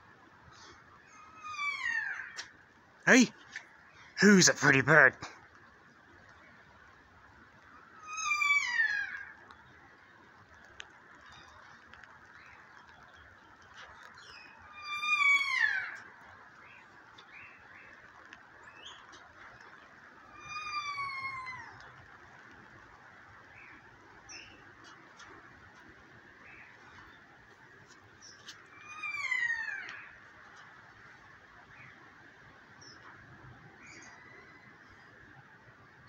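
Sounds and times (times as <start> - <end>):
parrot calling: 28.8 - 30.2.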